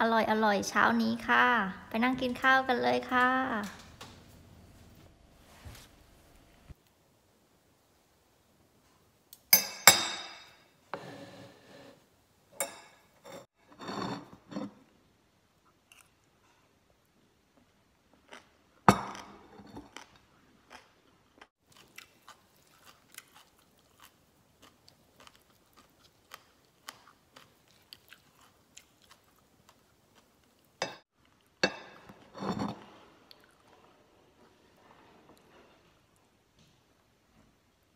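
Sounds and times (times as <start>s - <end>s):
person chewing crunchy food: 19.7s - 31.6s.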